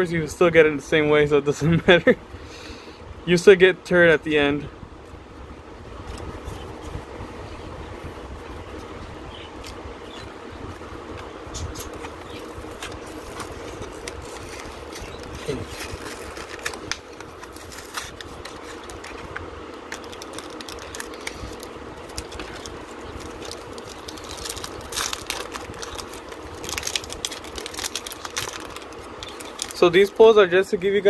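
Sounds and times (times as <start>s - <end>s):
background hum: 0.0s - 31.0s
foil wrapper crinkling: 11.7s - 30.4s
wrapper tearing open: 11.8s - 30.2s.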